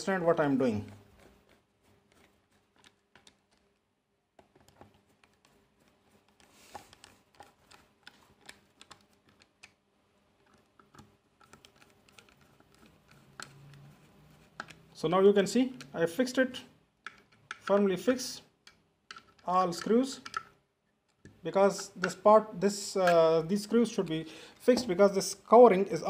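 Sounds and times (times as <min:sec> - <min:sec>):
screwdriver clicks and scrapes: 0:10.5 - 0:14.9, 0:18.6 - 0:20.5.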